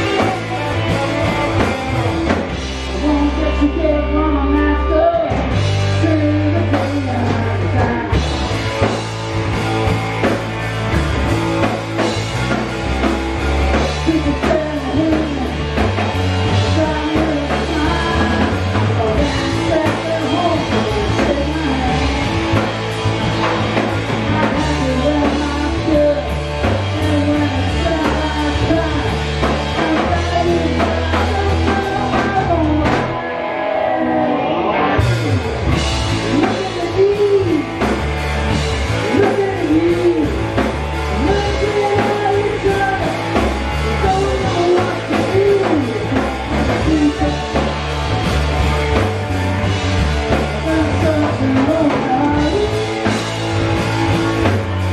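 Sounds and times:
male lead vocal singing: 0.0 - 2.3, 13.7 - 15.6, 16.5 - 22.7, 24.1 - 35.4, 36.2 - 37.8, 39.0 - 47.8, 50.3 - 53.2
live rock band playing: 0.0 - 54.9.

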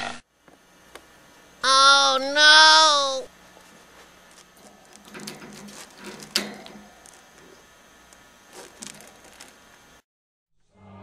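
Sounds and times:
claws clicking on wire cage: 4.3 - 9.6.

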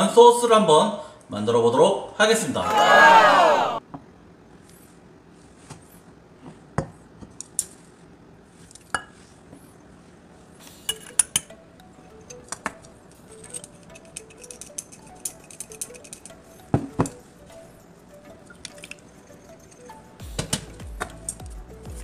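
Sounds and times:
faint background music: 0.0 - 3.8, 10.4 - 22.0.

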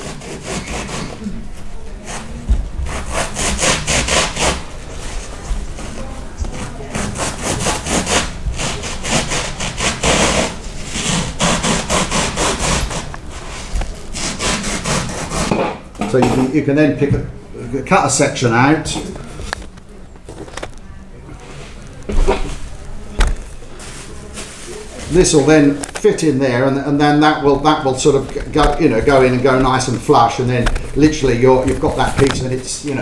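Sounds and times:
knife sawing through foam: 0.0 - 1.2, 2.1 - 4.6, 6.6 - 13.6, 14.2 - 15.6.

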